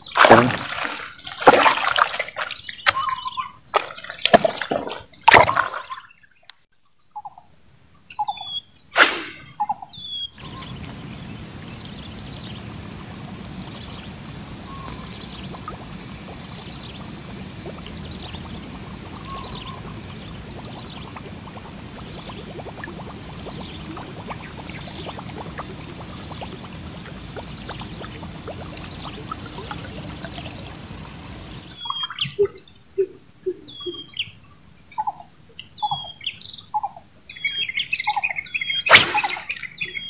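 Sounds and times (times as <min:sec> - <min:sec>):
splash on water: 0:00.0 - 0:06.1, 0:09.0 - 0:09.8, 0:38.9 - 0:40.0
short chirping calls: 0:02.4 - 0:03.8, 0:07.1 - 0:10.7, 0:31.7 - 0:40.0
steady hiss: 0:09.0 - 0:09.9.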